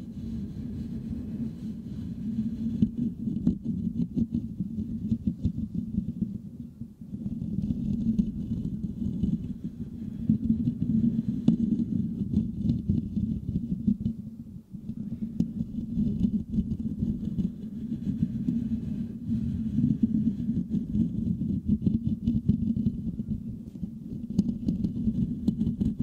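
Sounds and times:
fingernails scratching microphone grille: 7.2s - 14.2s, 14.9s - 26.0s.

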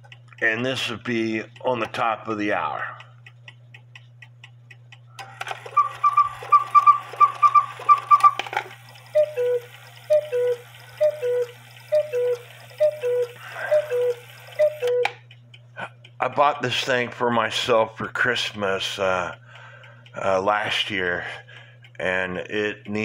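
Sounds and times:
clock ticking: 0.0s - 23.0s
quail clock call: 5.6s - 15.1s
cuckoo two-note call: 9.1s - 15.1s.

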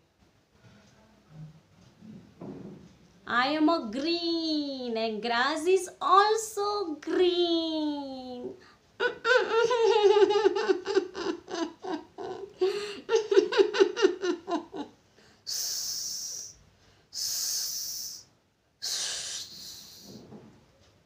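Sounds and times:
woman speaking: 3.3s - 10.7s
person imitating snake hiss: 15.5s - 20.2s.

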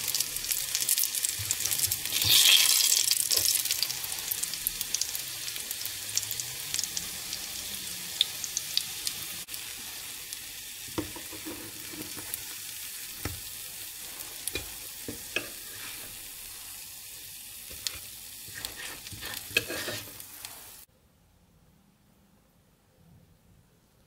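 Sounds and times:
pancakes sizzling in frying pan: 0.0s - 20.9s
spatula scraping pan: 11.0s - 12.6s, 13.2s - 16.8s, 17.7s - 20.9s.

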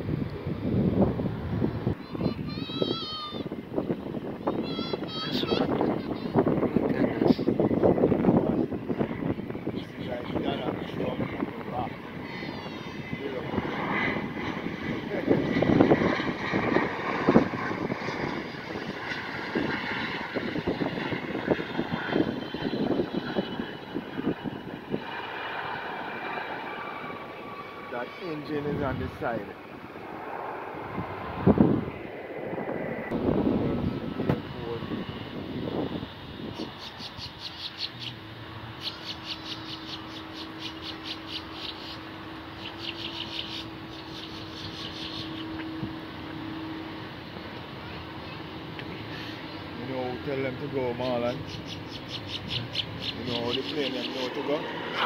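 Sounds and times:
high turbine whine: 0.0s - 55.0s
jet engine rumble: 0.0s - 55.0s
low gusty thumps: 29.8s - 36.7s
small animal chirping: 36.6s - 38.2s, 38.8s - 42.0s, 42.6s - 45.4s, 51.4s - 54.2s.

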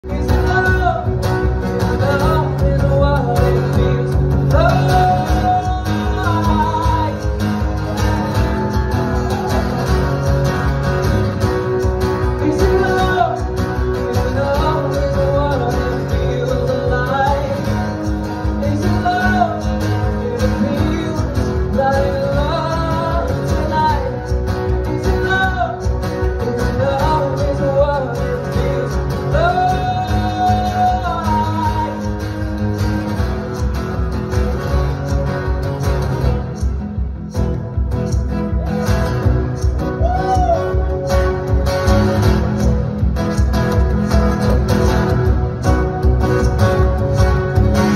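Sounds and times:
man singing: 0.0s - 10.3s, 12.0s - 32.8s
acoustic guitar strumming: 0.0s - 47.9s.

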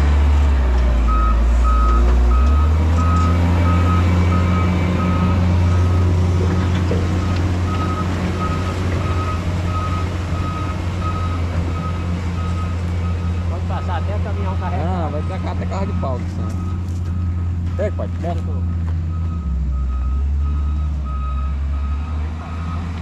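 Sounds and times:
diesel engine running: 0.0s - 23.0s
reverse alarm beeping: 7.2s - 23.0s.

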